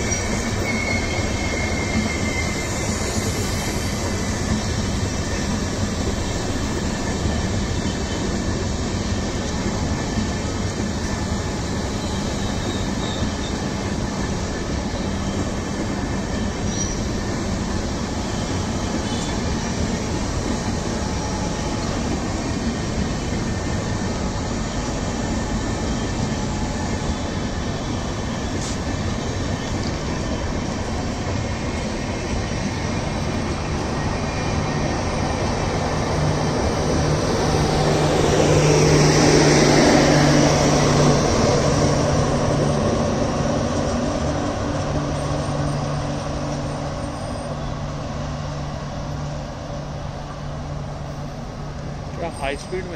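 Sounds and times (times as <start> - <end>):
train wheels rumbling on rail: 0.0 - 52.9.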